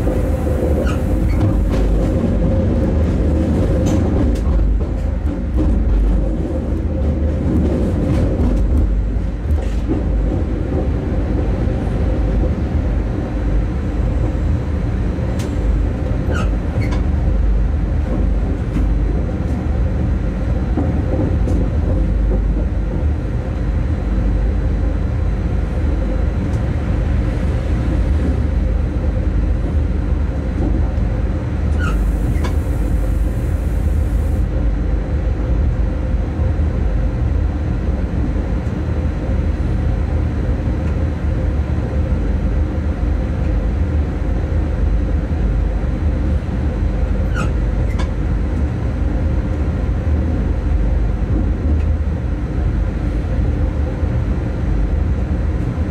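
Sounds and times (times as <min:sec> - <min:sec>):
locomotive cab rumble and hum: 0:00.0 - 0:55.9.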